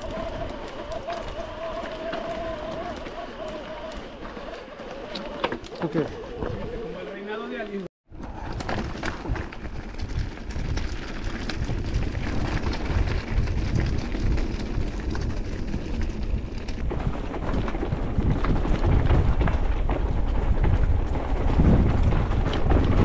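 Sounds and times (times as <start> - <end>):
wind buffeting microphone: 8.1 - 23.0
bike knocks and rattles: 8.2 - 23.0.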